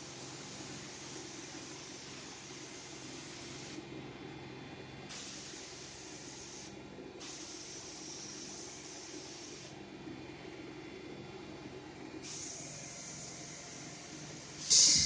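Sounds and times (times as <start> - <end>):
spray gun hissing: 0.0 - 3.8, 5.1 - 9.7, 12.2 - 15.0.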